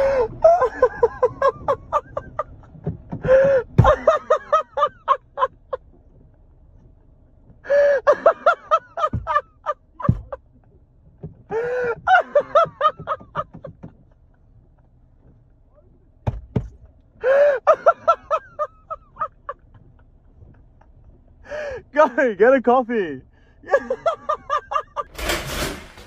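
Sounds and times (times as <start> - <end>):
dull thumps: 1.0 - 4.3, 8.8 - 15.4, 16.2 - 17.0.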